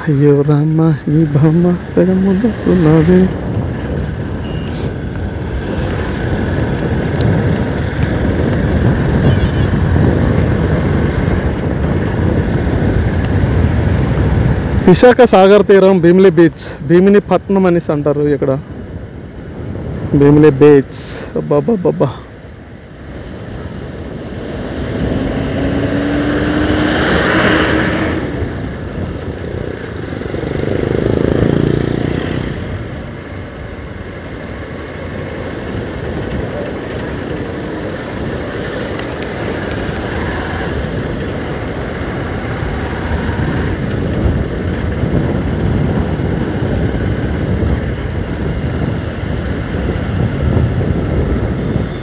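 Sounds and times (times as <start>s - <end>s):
wind noise on microphone: 0.0s - 52.0s
motorcycle engine running: 23.3s - 52.0s.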